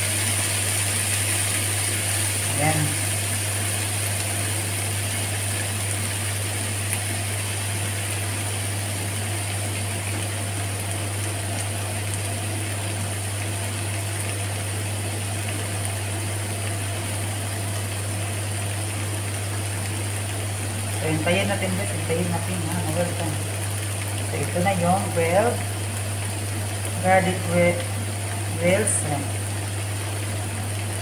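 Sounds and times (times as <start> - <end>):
food sizzling on grill pan: 0.0 - 9.6
steady low hum: 0.0 - 31.0.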